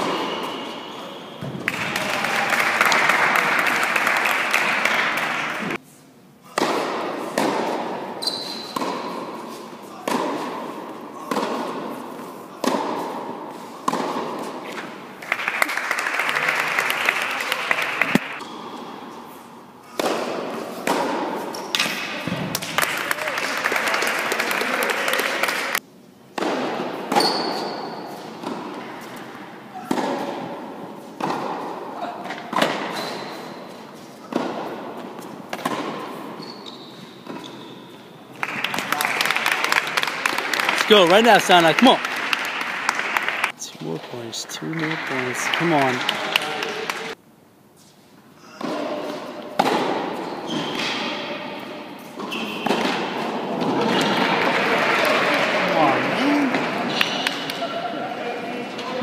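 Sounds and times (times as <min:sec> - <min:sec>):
applause: 0:01.6 - 0:05.7, 0:15.2 - 0:18.4, 0:22.6 - 0:25.8, 0:38.4 - 0:43.6, 0:44.2 - 0:47.2, 0:54.2 - 0:56.6
spectators clapping: 0:01.6 - 0:05.8, 0:15.2 - 0:18.4, 0:22.5 - 0:25.8, 0:38.4 - 0:47.2, 0:54.0 - 0:57.6
tennis balls struck by rackets: 0:06.5 - 0:15.0, 0:19.9 - 0:22.8, 0:26.3 - 0:29.2, 0:29.8 - 0:33.0, 0:34.2 - 0:36.4, 0:48.6 - 0:51.1, 0:52.1 - 0:54.3
tennis balls bouncing: 0:06.5 - 0:15.4, 0:19.9 - 0:22.7, 0:29.8 - 0:33.1, 0:34.2 - 0:36.4, 0:37.1 - 0:37.6, 0:48.6 - 0:51.0, 0:52.2 - 0:54.4
tennis ball hits: 0:06.6 - 0:07.9, 0:10.0 - 0:12.0, 0:12.6 - 0:14.9.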